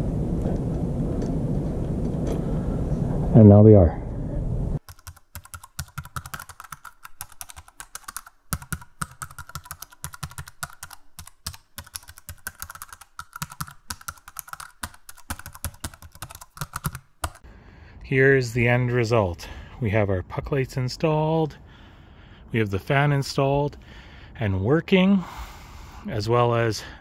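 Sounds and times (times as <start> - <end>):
keyboard typing clicks: 4.8 - 17.4.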